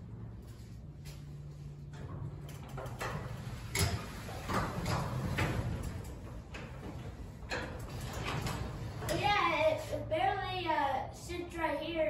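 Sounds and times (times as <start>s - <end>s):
garage door rollers rumbling in tracks: 1.3s - 10.6s.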